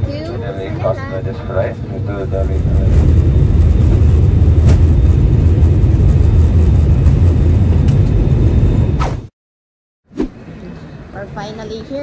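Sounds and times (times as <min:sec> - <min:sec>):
airliner cabin engine rumble: 0:00.0 - 0:09.2.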